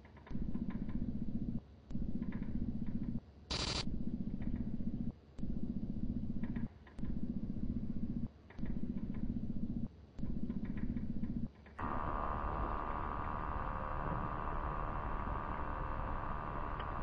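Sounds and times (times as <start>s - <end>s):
pulsing mechanical motor buzz: 3.5s - 3.8s, 11.8s - 17.0s.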